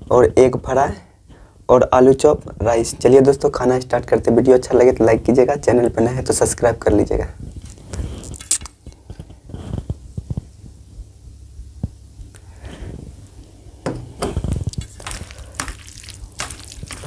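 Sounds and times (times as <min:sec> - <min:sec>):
curry pouring over rice: 0:14.7 - 0:17.0.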